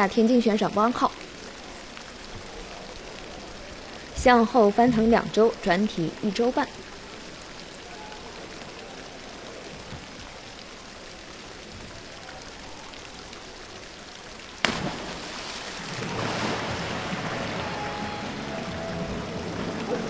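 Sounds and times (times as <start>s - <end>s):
diver splashing into pool: 14.6s - 20.0s
crowd applause: 15.9s - 20.0s.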